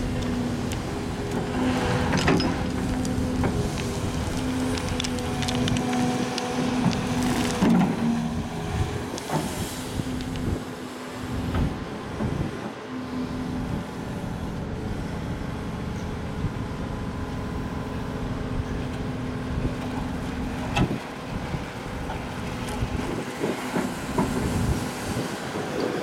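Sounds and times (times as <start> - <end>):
excavator engine and hydraulics: 0.0 - 26.0.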